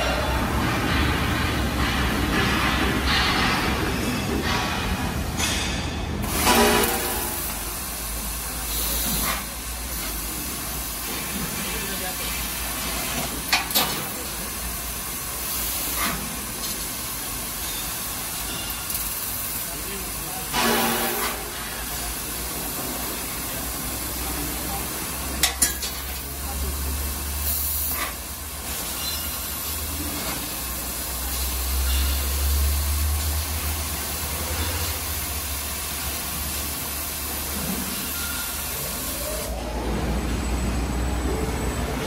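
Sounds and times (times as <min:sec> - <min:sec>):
laser cutter gas hiss: 0:06.2 - 0:39.6.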